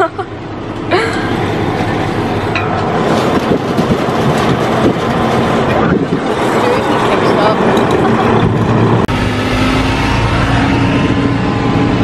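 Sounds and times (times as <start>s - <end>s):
truck engine running: 0.0s - 12.0s
cab rattles and knocks: 2.5s - 8.8s.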